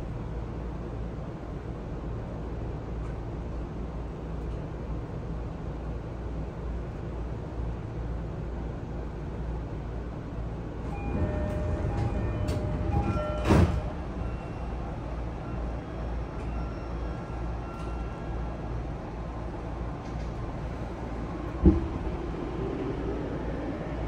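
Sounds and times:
train cabin low rumble: 0.0 - 24.0.

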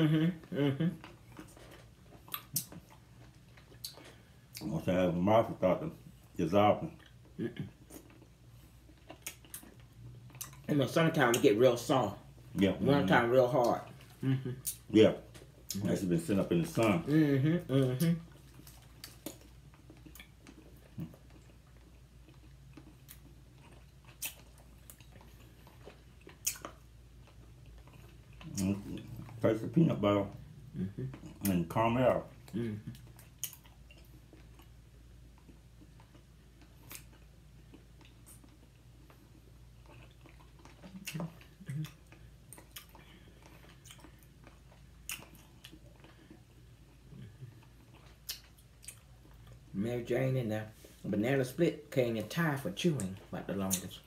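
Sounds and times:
closed-mouth hums: 0.0 - 1.3, 13.6 - 14.9, 16.8 - 18.4, 28.4 - 33.6
chewing sticky candy: 0.0 - 4.9, 6.8 - 49.8
wet mouth clicks and smacks: 2.3 - 2.9.

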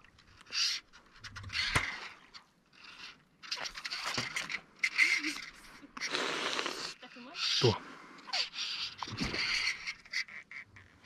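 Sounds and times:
fishing reel buzzing: 8.3 - 10.9.

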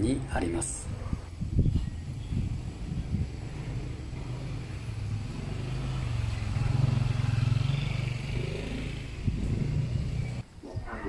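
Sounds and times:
vehicle engine passing: 2.0 - 10.4.

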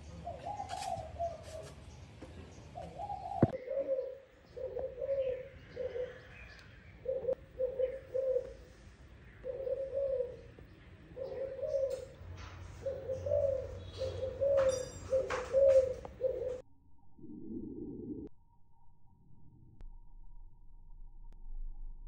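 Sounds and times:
faint small birds chirping: 0.0 - 16.6
dove cooing: 0.2 - 1.8, 2.8 - 8.7, 9.4 - 16.6.

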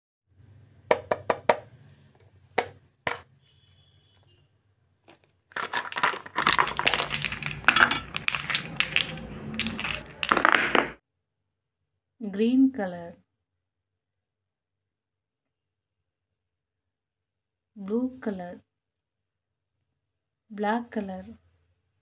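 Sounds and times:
plastic bottles clattering: 5.1 - 11.0.

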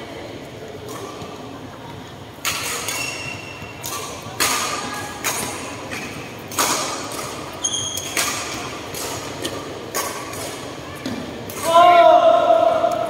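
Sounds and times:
racket hitting shuttlecock: 0.8 - 1.4, 2.4 - 12.0
shoe squeaking on court: 2.8 - 4.3, 7.4 - 8.7.

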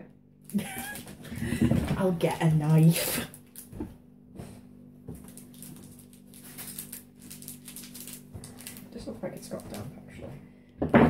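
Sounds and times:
low room hum: 0.0 - 11.0
plastic packet crinkling: 2.7 - 3.8, 5.2 - 9.9.

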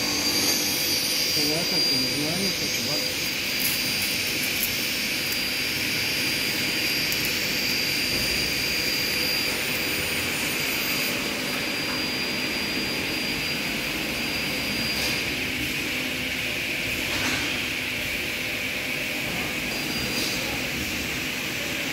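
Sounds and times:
faint high whine: 0.0 - 15.4
machinery drone: 0.0 - 17.4.

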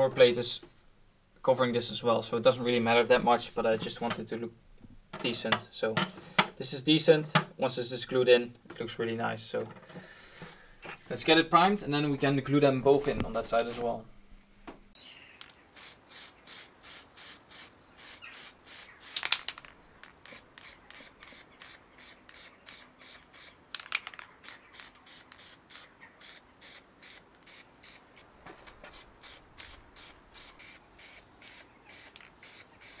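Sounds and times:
spray can hissing bursts: 15.8 - 19.3, 20.2 - 23.6, 24.4 - 28.2, 28.9 - 33.0.

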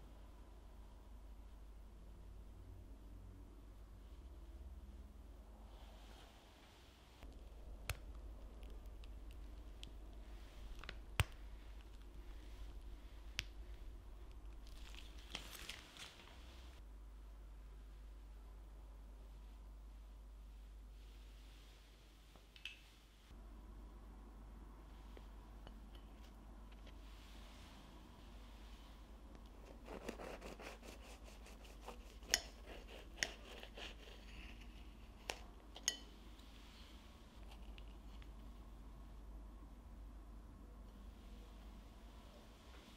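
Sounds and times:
pastry crust crackling: 7.2 - 16.7
piping bag squishing and crinkling: 7.3 - 16.4.

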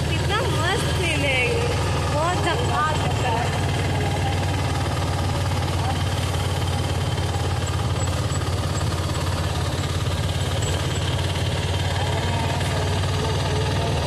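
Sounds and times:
road noise: 0.0 - 14.0
vehicle engine running: 0.0 - 14.0.

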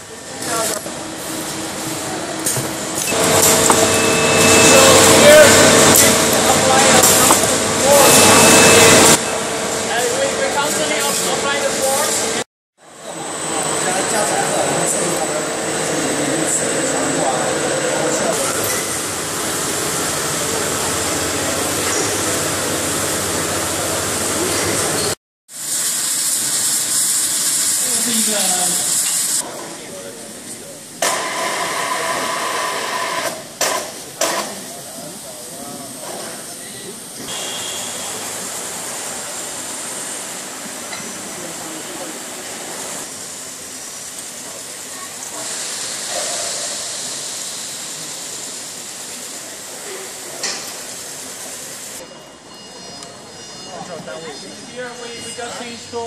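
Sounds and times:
steady hiss of welding: 18.3 - 52.0
water spraying: 25.5 - 29.4.

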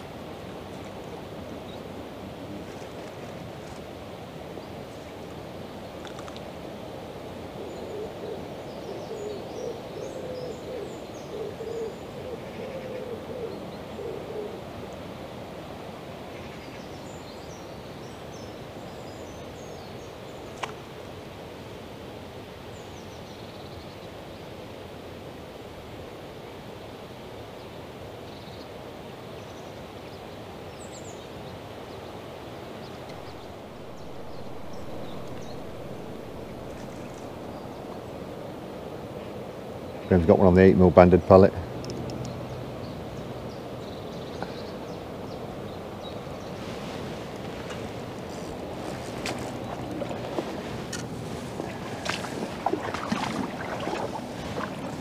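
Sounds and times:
bird low hooting call: 7.5 - 14.9, 33.1 - 38.5, 47.6 - 55.0
small birds chirping: 41.3 - 55.0
fast-flowing river water: 47.2 - 55.0.

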